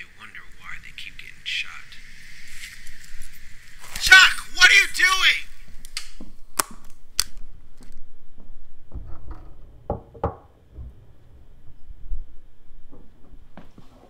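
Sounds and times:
sharp clicks: 5.8 - 7.9
dull low thumps: 8.3 - 13.6.

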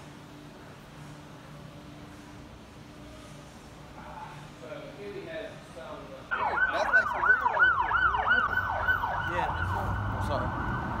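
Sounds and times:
low traffic rumble: 0.0 - 11.0
emergency siren yelping: 6.3 - 11.0.

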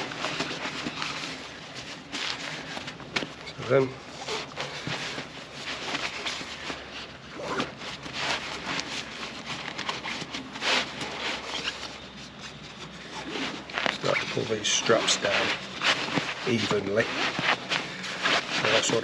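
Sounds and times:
fabric sack rustling and swishing: 13.2 - 19.0.

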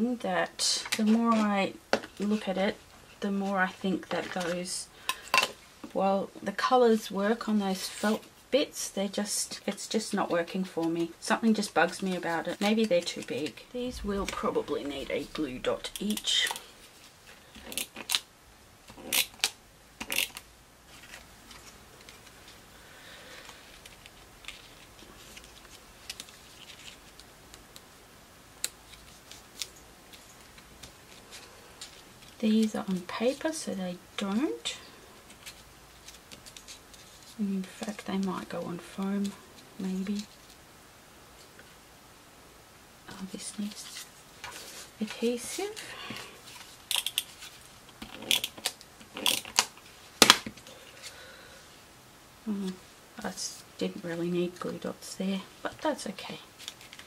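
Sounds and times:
paper clicks and rustles: 23.3 - 27.8, 35.2 - 38.5, 56.6 - 57.0.

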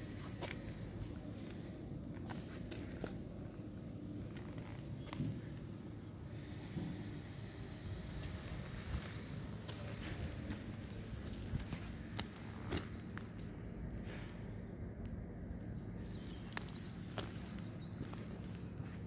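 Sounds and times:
low background hum: 0.0 - 19.0
footsteps crunching on gravel: 8.2 - 13.5, 16.1 - 19.0.

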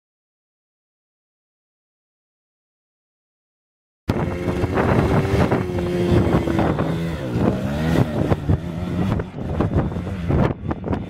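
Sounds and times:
motorcycle engine revving: 4.1 - 11.0
wind buffeting microphone: 4.1 - 11.0.

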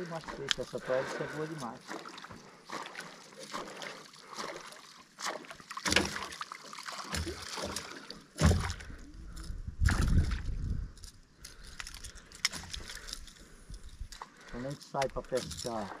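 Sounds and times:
fish thrashing and splashing: 0.0 - 16.0
knocks and thumps on boat: 5.8 - 6.4, 7.0 - 8.9.

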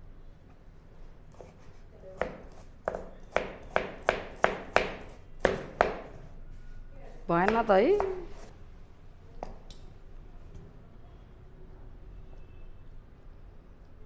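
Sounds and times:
knife chopping on plastic board: 2.2 - 6.2, 7.4 - 8.5.

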